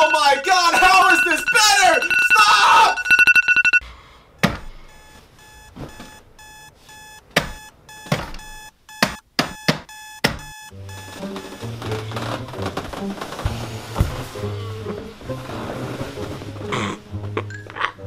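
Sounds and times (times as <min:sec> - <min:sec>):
digital alarm clock beeping: 0:00.0 - 0:03.8, 0:04.9 - 0:11.6.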